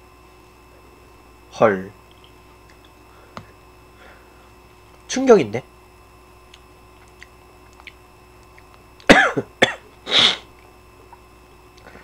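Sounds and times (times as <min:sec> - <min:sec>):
man coughing: 0:09.1 - 0:10.5.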